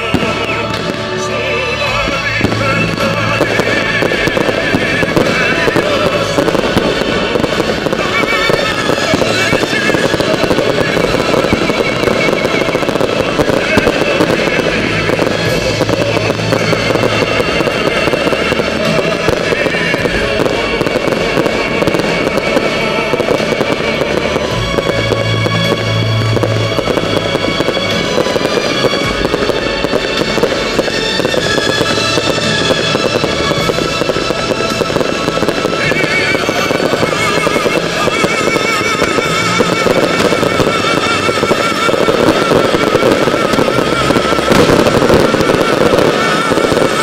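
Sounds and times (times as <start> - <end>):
fireworks crackling and popping: 0.0 - 47.0.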